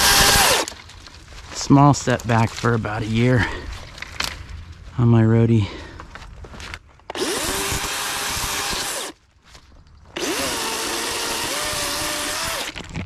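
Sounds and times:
chainsaw cutting wood: 0.0s - 0.8s, 7.1s - 9.2s, 10.2s - 12.9s.

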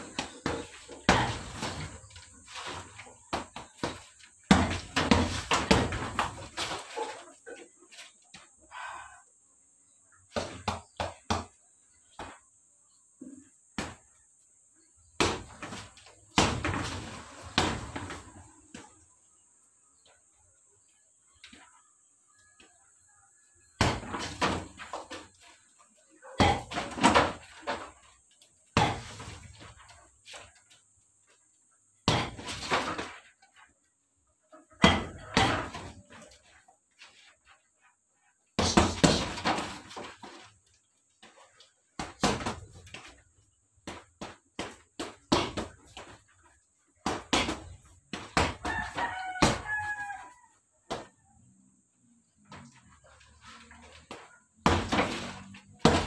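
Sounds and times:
punches smacking punching bag: 0.0s - 1.8s, 3.3s - 6.4s, 26.4s - 27.4s, 28.8s - 29.3s, 32.0s - 32.5s, 34.8s - 36.0s, 38.6s - 40.0s, 43.8s - 45.8s, 54.6s - 56.0s
punches hitting punching bag: 28.8s - 29.2s, 32.1s - 32.5s, 38.6s - 39.8s.

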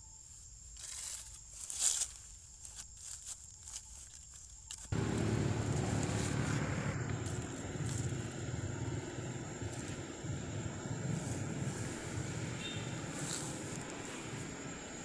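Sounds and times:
faint rustling and crackles: 0.3s - 15.0s
steady low rumble: 5.0s - 15.0s.

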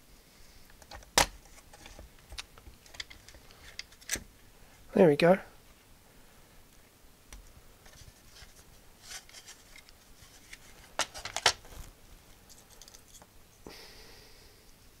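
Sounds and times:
hands rubbing plastic casing: 7.3s - 11.9s.

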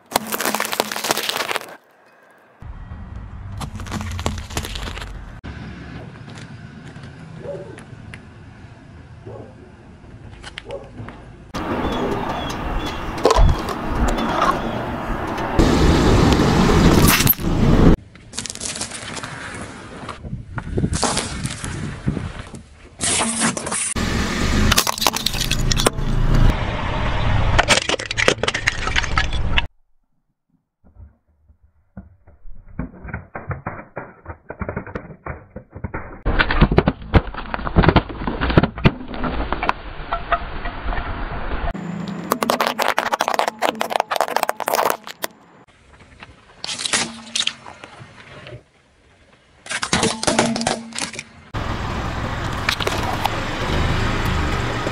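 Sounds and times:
plastic bottles crushed by tyre: 0.0s - 1.8s, 24.7s - 26.0s, 33.1s - 39.7s, 42.3s - 45.3s
soda cans crunching and bursting: 0.0s - 1.8s, 24.7s - 26.0s, 33.4s - 39.7s, 42.3s - 45.3s
water beads crackling and popping: 0.0s - 1.8s, 42.3s - 45.4s
car tyre rolling over asphalt: 2.6s - 8.3s, 35.6s - 46.6s, 51.5s - 54.9s.

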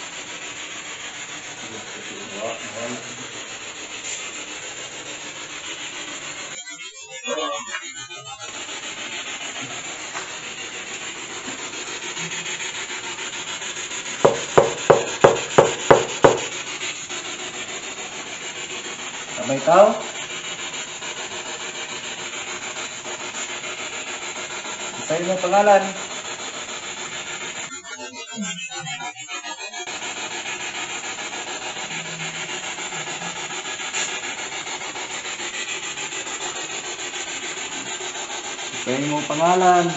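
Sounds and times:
steady hiss: 0.0s - 6.6s, 8.0s - 28.7s, 29.3s - 39.9s
quick knocks: 14.3s - 16.5s.

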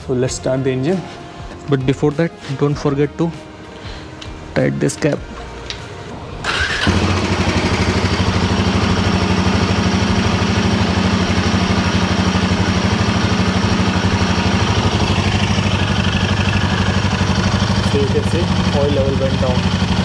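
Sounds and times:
motorcycle engine idling: 6.5s - 20.0s.

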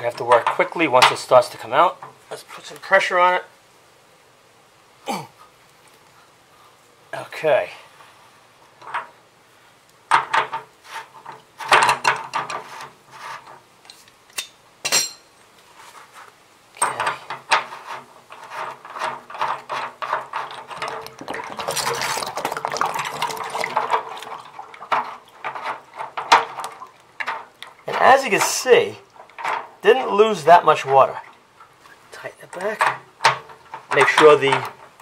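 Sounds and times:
metal clinks and scraping: 10.2s - 15.4s.

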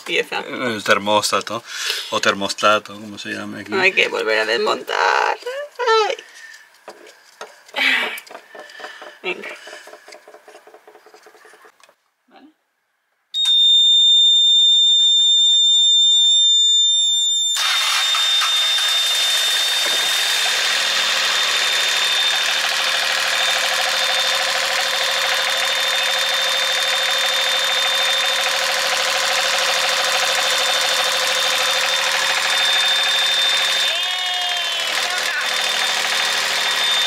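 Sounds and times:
shrill warning buzzer: 13.4s - 37.0s.

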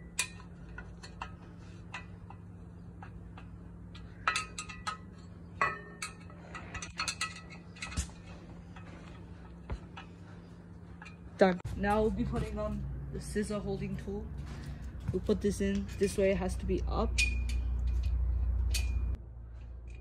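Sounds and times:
steady low hum: 0.0s - 20.0s
metallic clicks and clinks: 15.6s - 19.2s.

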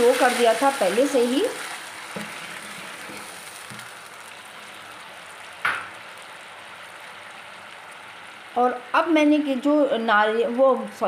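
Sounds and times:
sugar sizzling in a pan: 0.0s - 11.0s
sharp knock: 5.6s - 5.9s.

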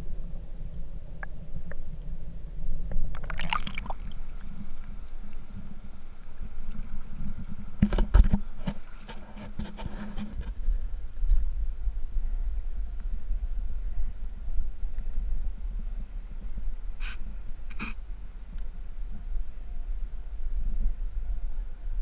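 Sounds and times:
muffled underwater river rumble: 0.0s - 22.0s
sharp splashes and knocks: 3.1s - 4.2s
water splashing: 3.1s - 10.0s.

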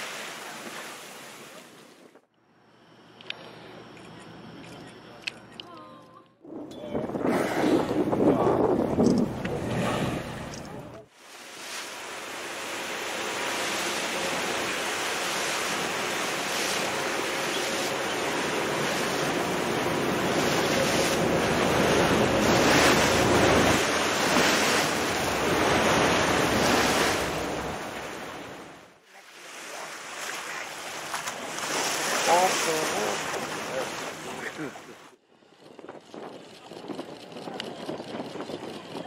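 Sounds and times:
water rushing and splashing: 0.0s - 2.2s, 7.0s - 35.1s
wind on microphone: 6.4s - 11.0s, 35.6s - 39.0s.

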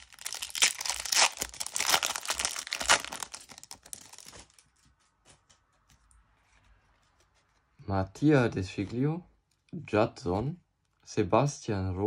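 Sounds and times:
foil wrapper tearing and crinkling: 0.0s - 4.6s.

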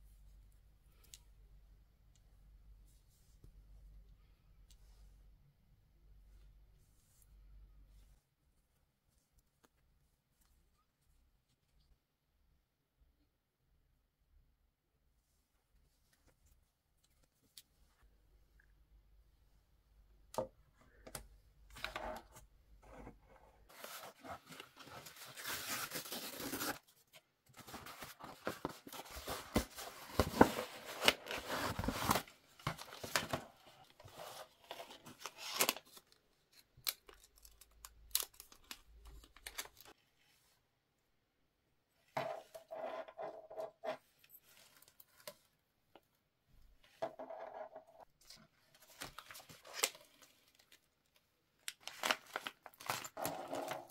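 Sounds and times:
plastic and cardboard rustling: 23.1s - 36.0s.

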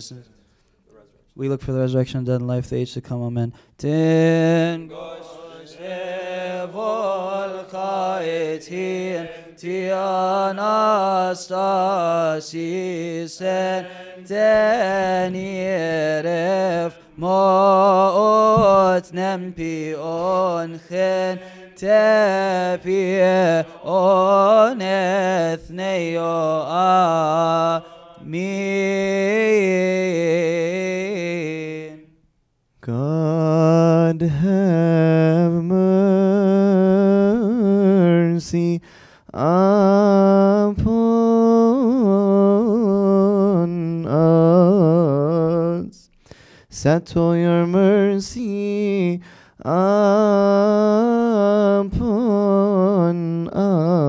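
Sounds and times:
man chanting: 0.0s - 32.2s.

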